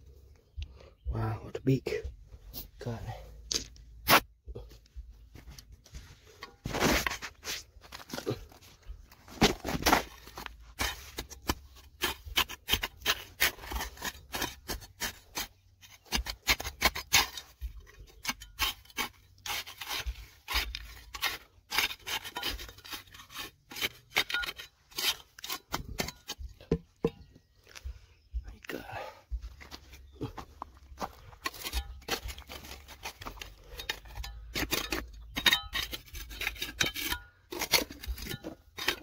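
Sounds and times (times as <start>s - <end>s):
digging tool scraping soil: 3.5s - 4.3s, 5.9s - 26.6s, 29.8s - 39.0s.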